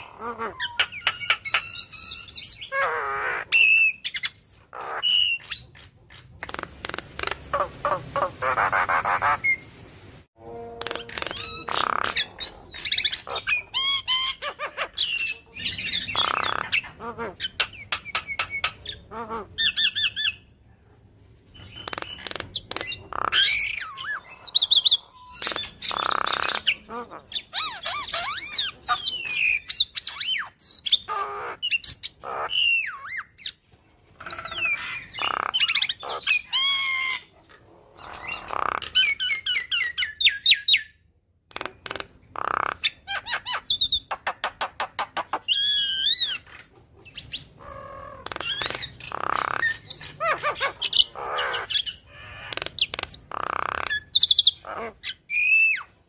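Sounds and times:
bird singing: 10.4 - 20.5, 42.0 - 56.0.

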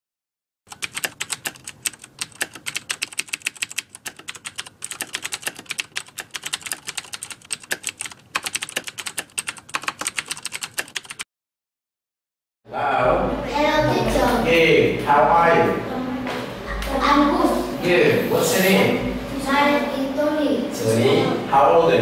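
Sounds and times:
rapid keyboard typing clicks: 0.7 - 11.3.

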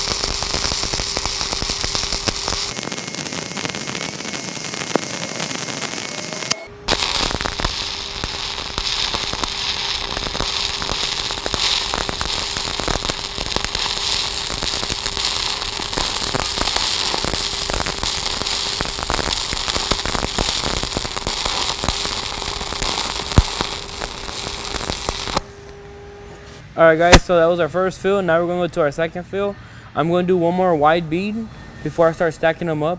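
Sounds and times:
welding arc crackling: 0.0 - 25.5.

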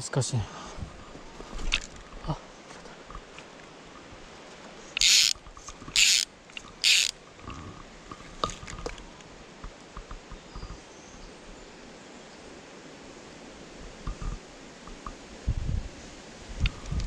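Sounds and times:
faint handling ticks: 4.9 - 7.2
fly reel ratchet buzzing: 5.0 - 7.2.

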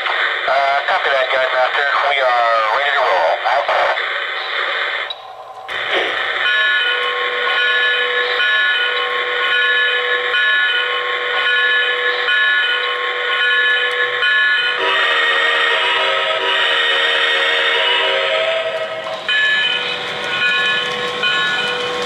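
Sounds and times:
model train ringing tone: 5.1 - 22.0.

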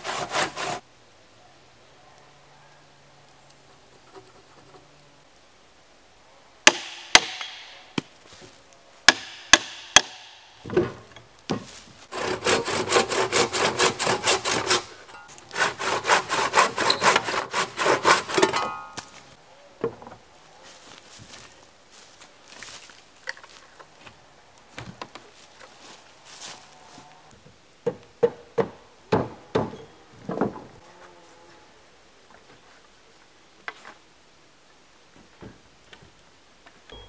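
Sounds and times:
handsaw cutting wood: 0.0 - 0.8, 12.1 - 18.7
sharp wooden knocks: 6.7 - 7.7, 9.1 - 11.6, 27.8 - 30.7.

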